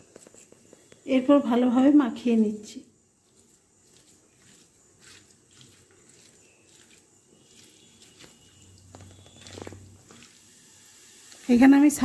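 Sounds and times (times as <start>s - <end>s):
hand squelching paste in bowl: 3.1s - 10.5s.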